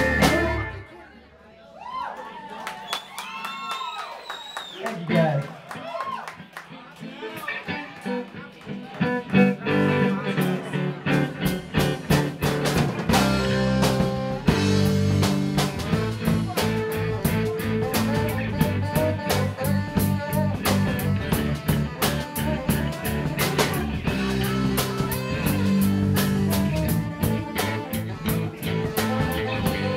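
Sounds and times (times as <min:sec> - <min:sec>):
drum kit: 0:00.0 - 0:00.8, 0:09.4 - 0:29.9
electric bass: 0:00.0 - 0:00.8, 0:08.9 - 0:29.9
electric guitar: 0:00.0 - 0:00.9, 0:05.0 - 0:29.9.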